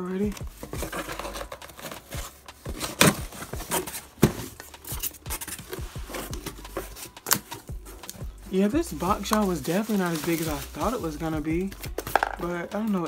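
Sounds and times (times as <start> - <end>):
packing peanuts rustling: 0.0 - 13.0
scissors cutting cardboard: 0.3 - 8.3.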